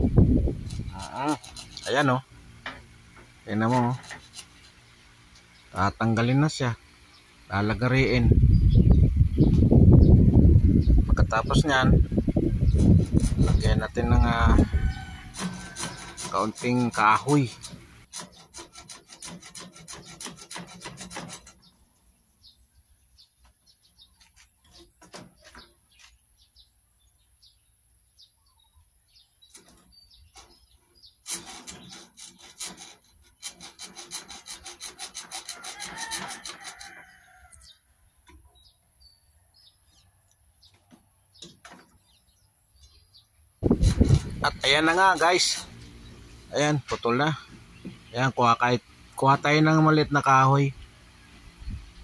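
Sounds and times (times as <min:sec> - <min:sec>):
hacksaw cutting metal: 0:00.6 - 0:02.8, 0:03.6 - 0:04.8, 0:12.7 - 0:21.7, 0:29.5 - 0:37.2, 0:43.6 - 0:45.9.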